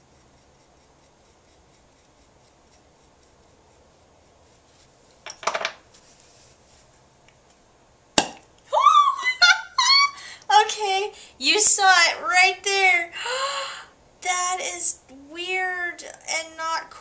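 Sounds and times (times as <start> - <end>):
pottery tool scratching clay: 0.0 - 5.2.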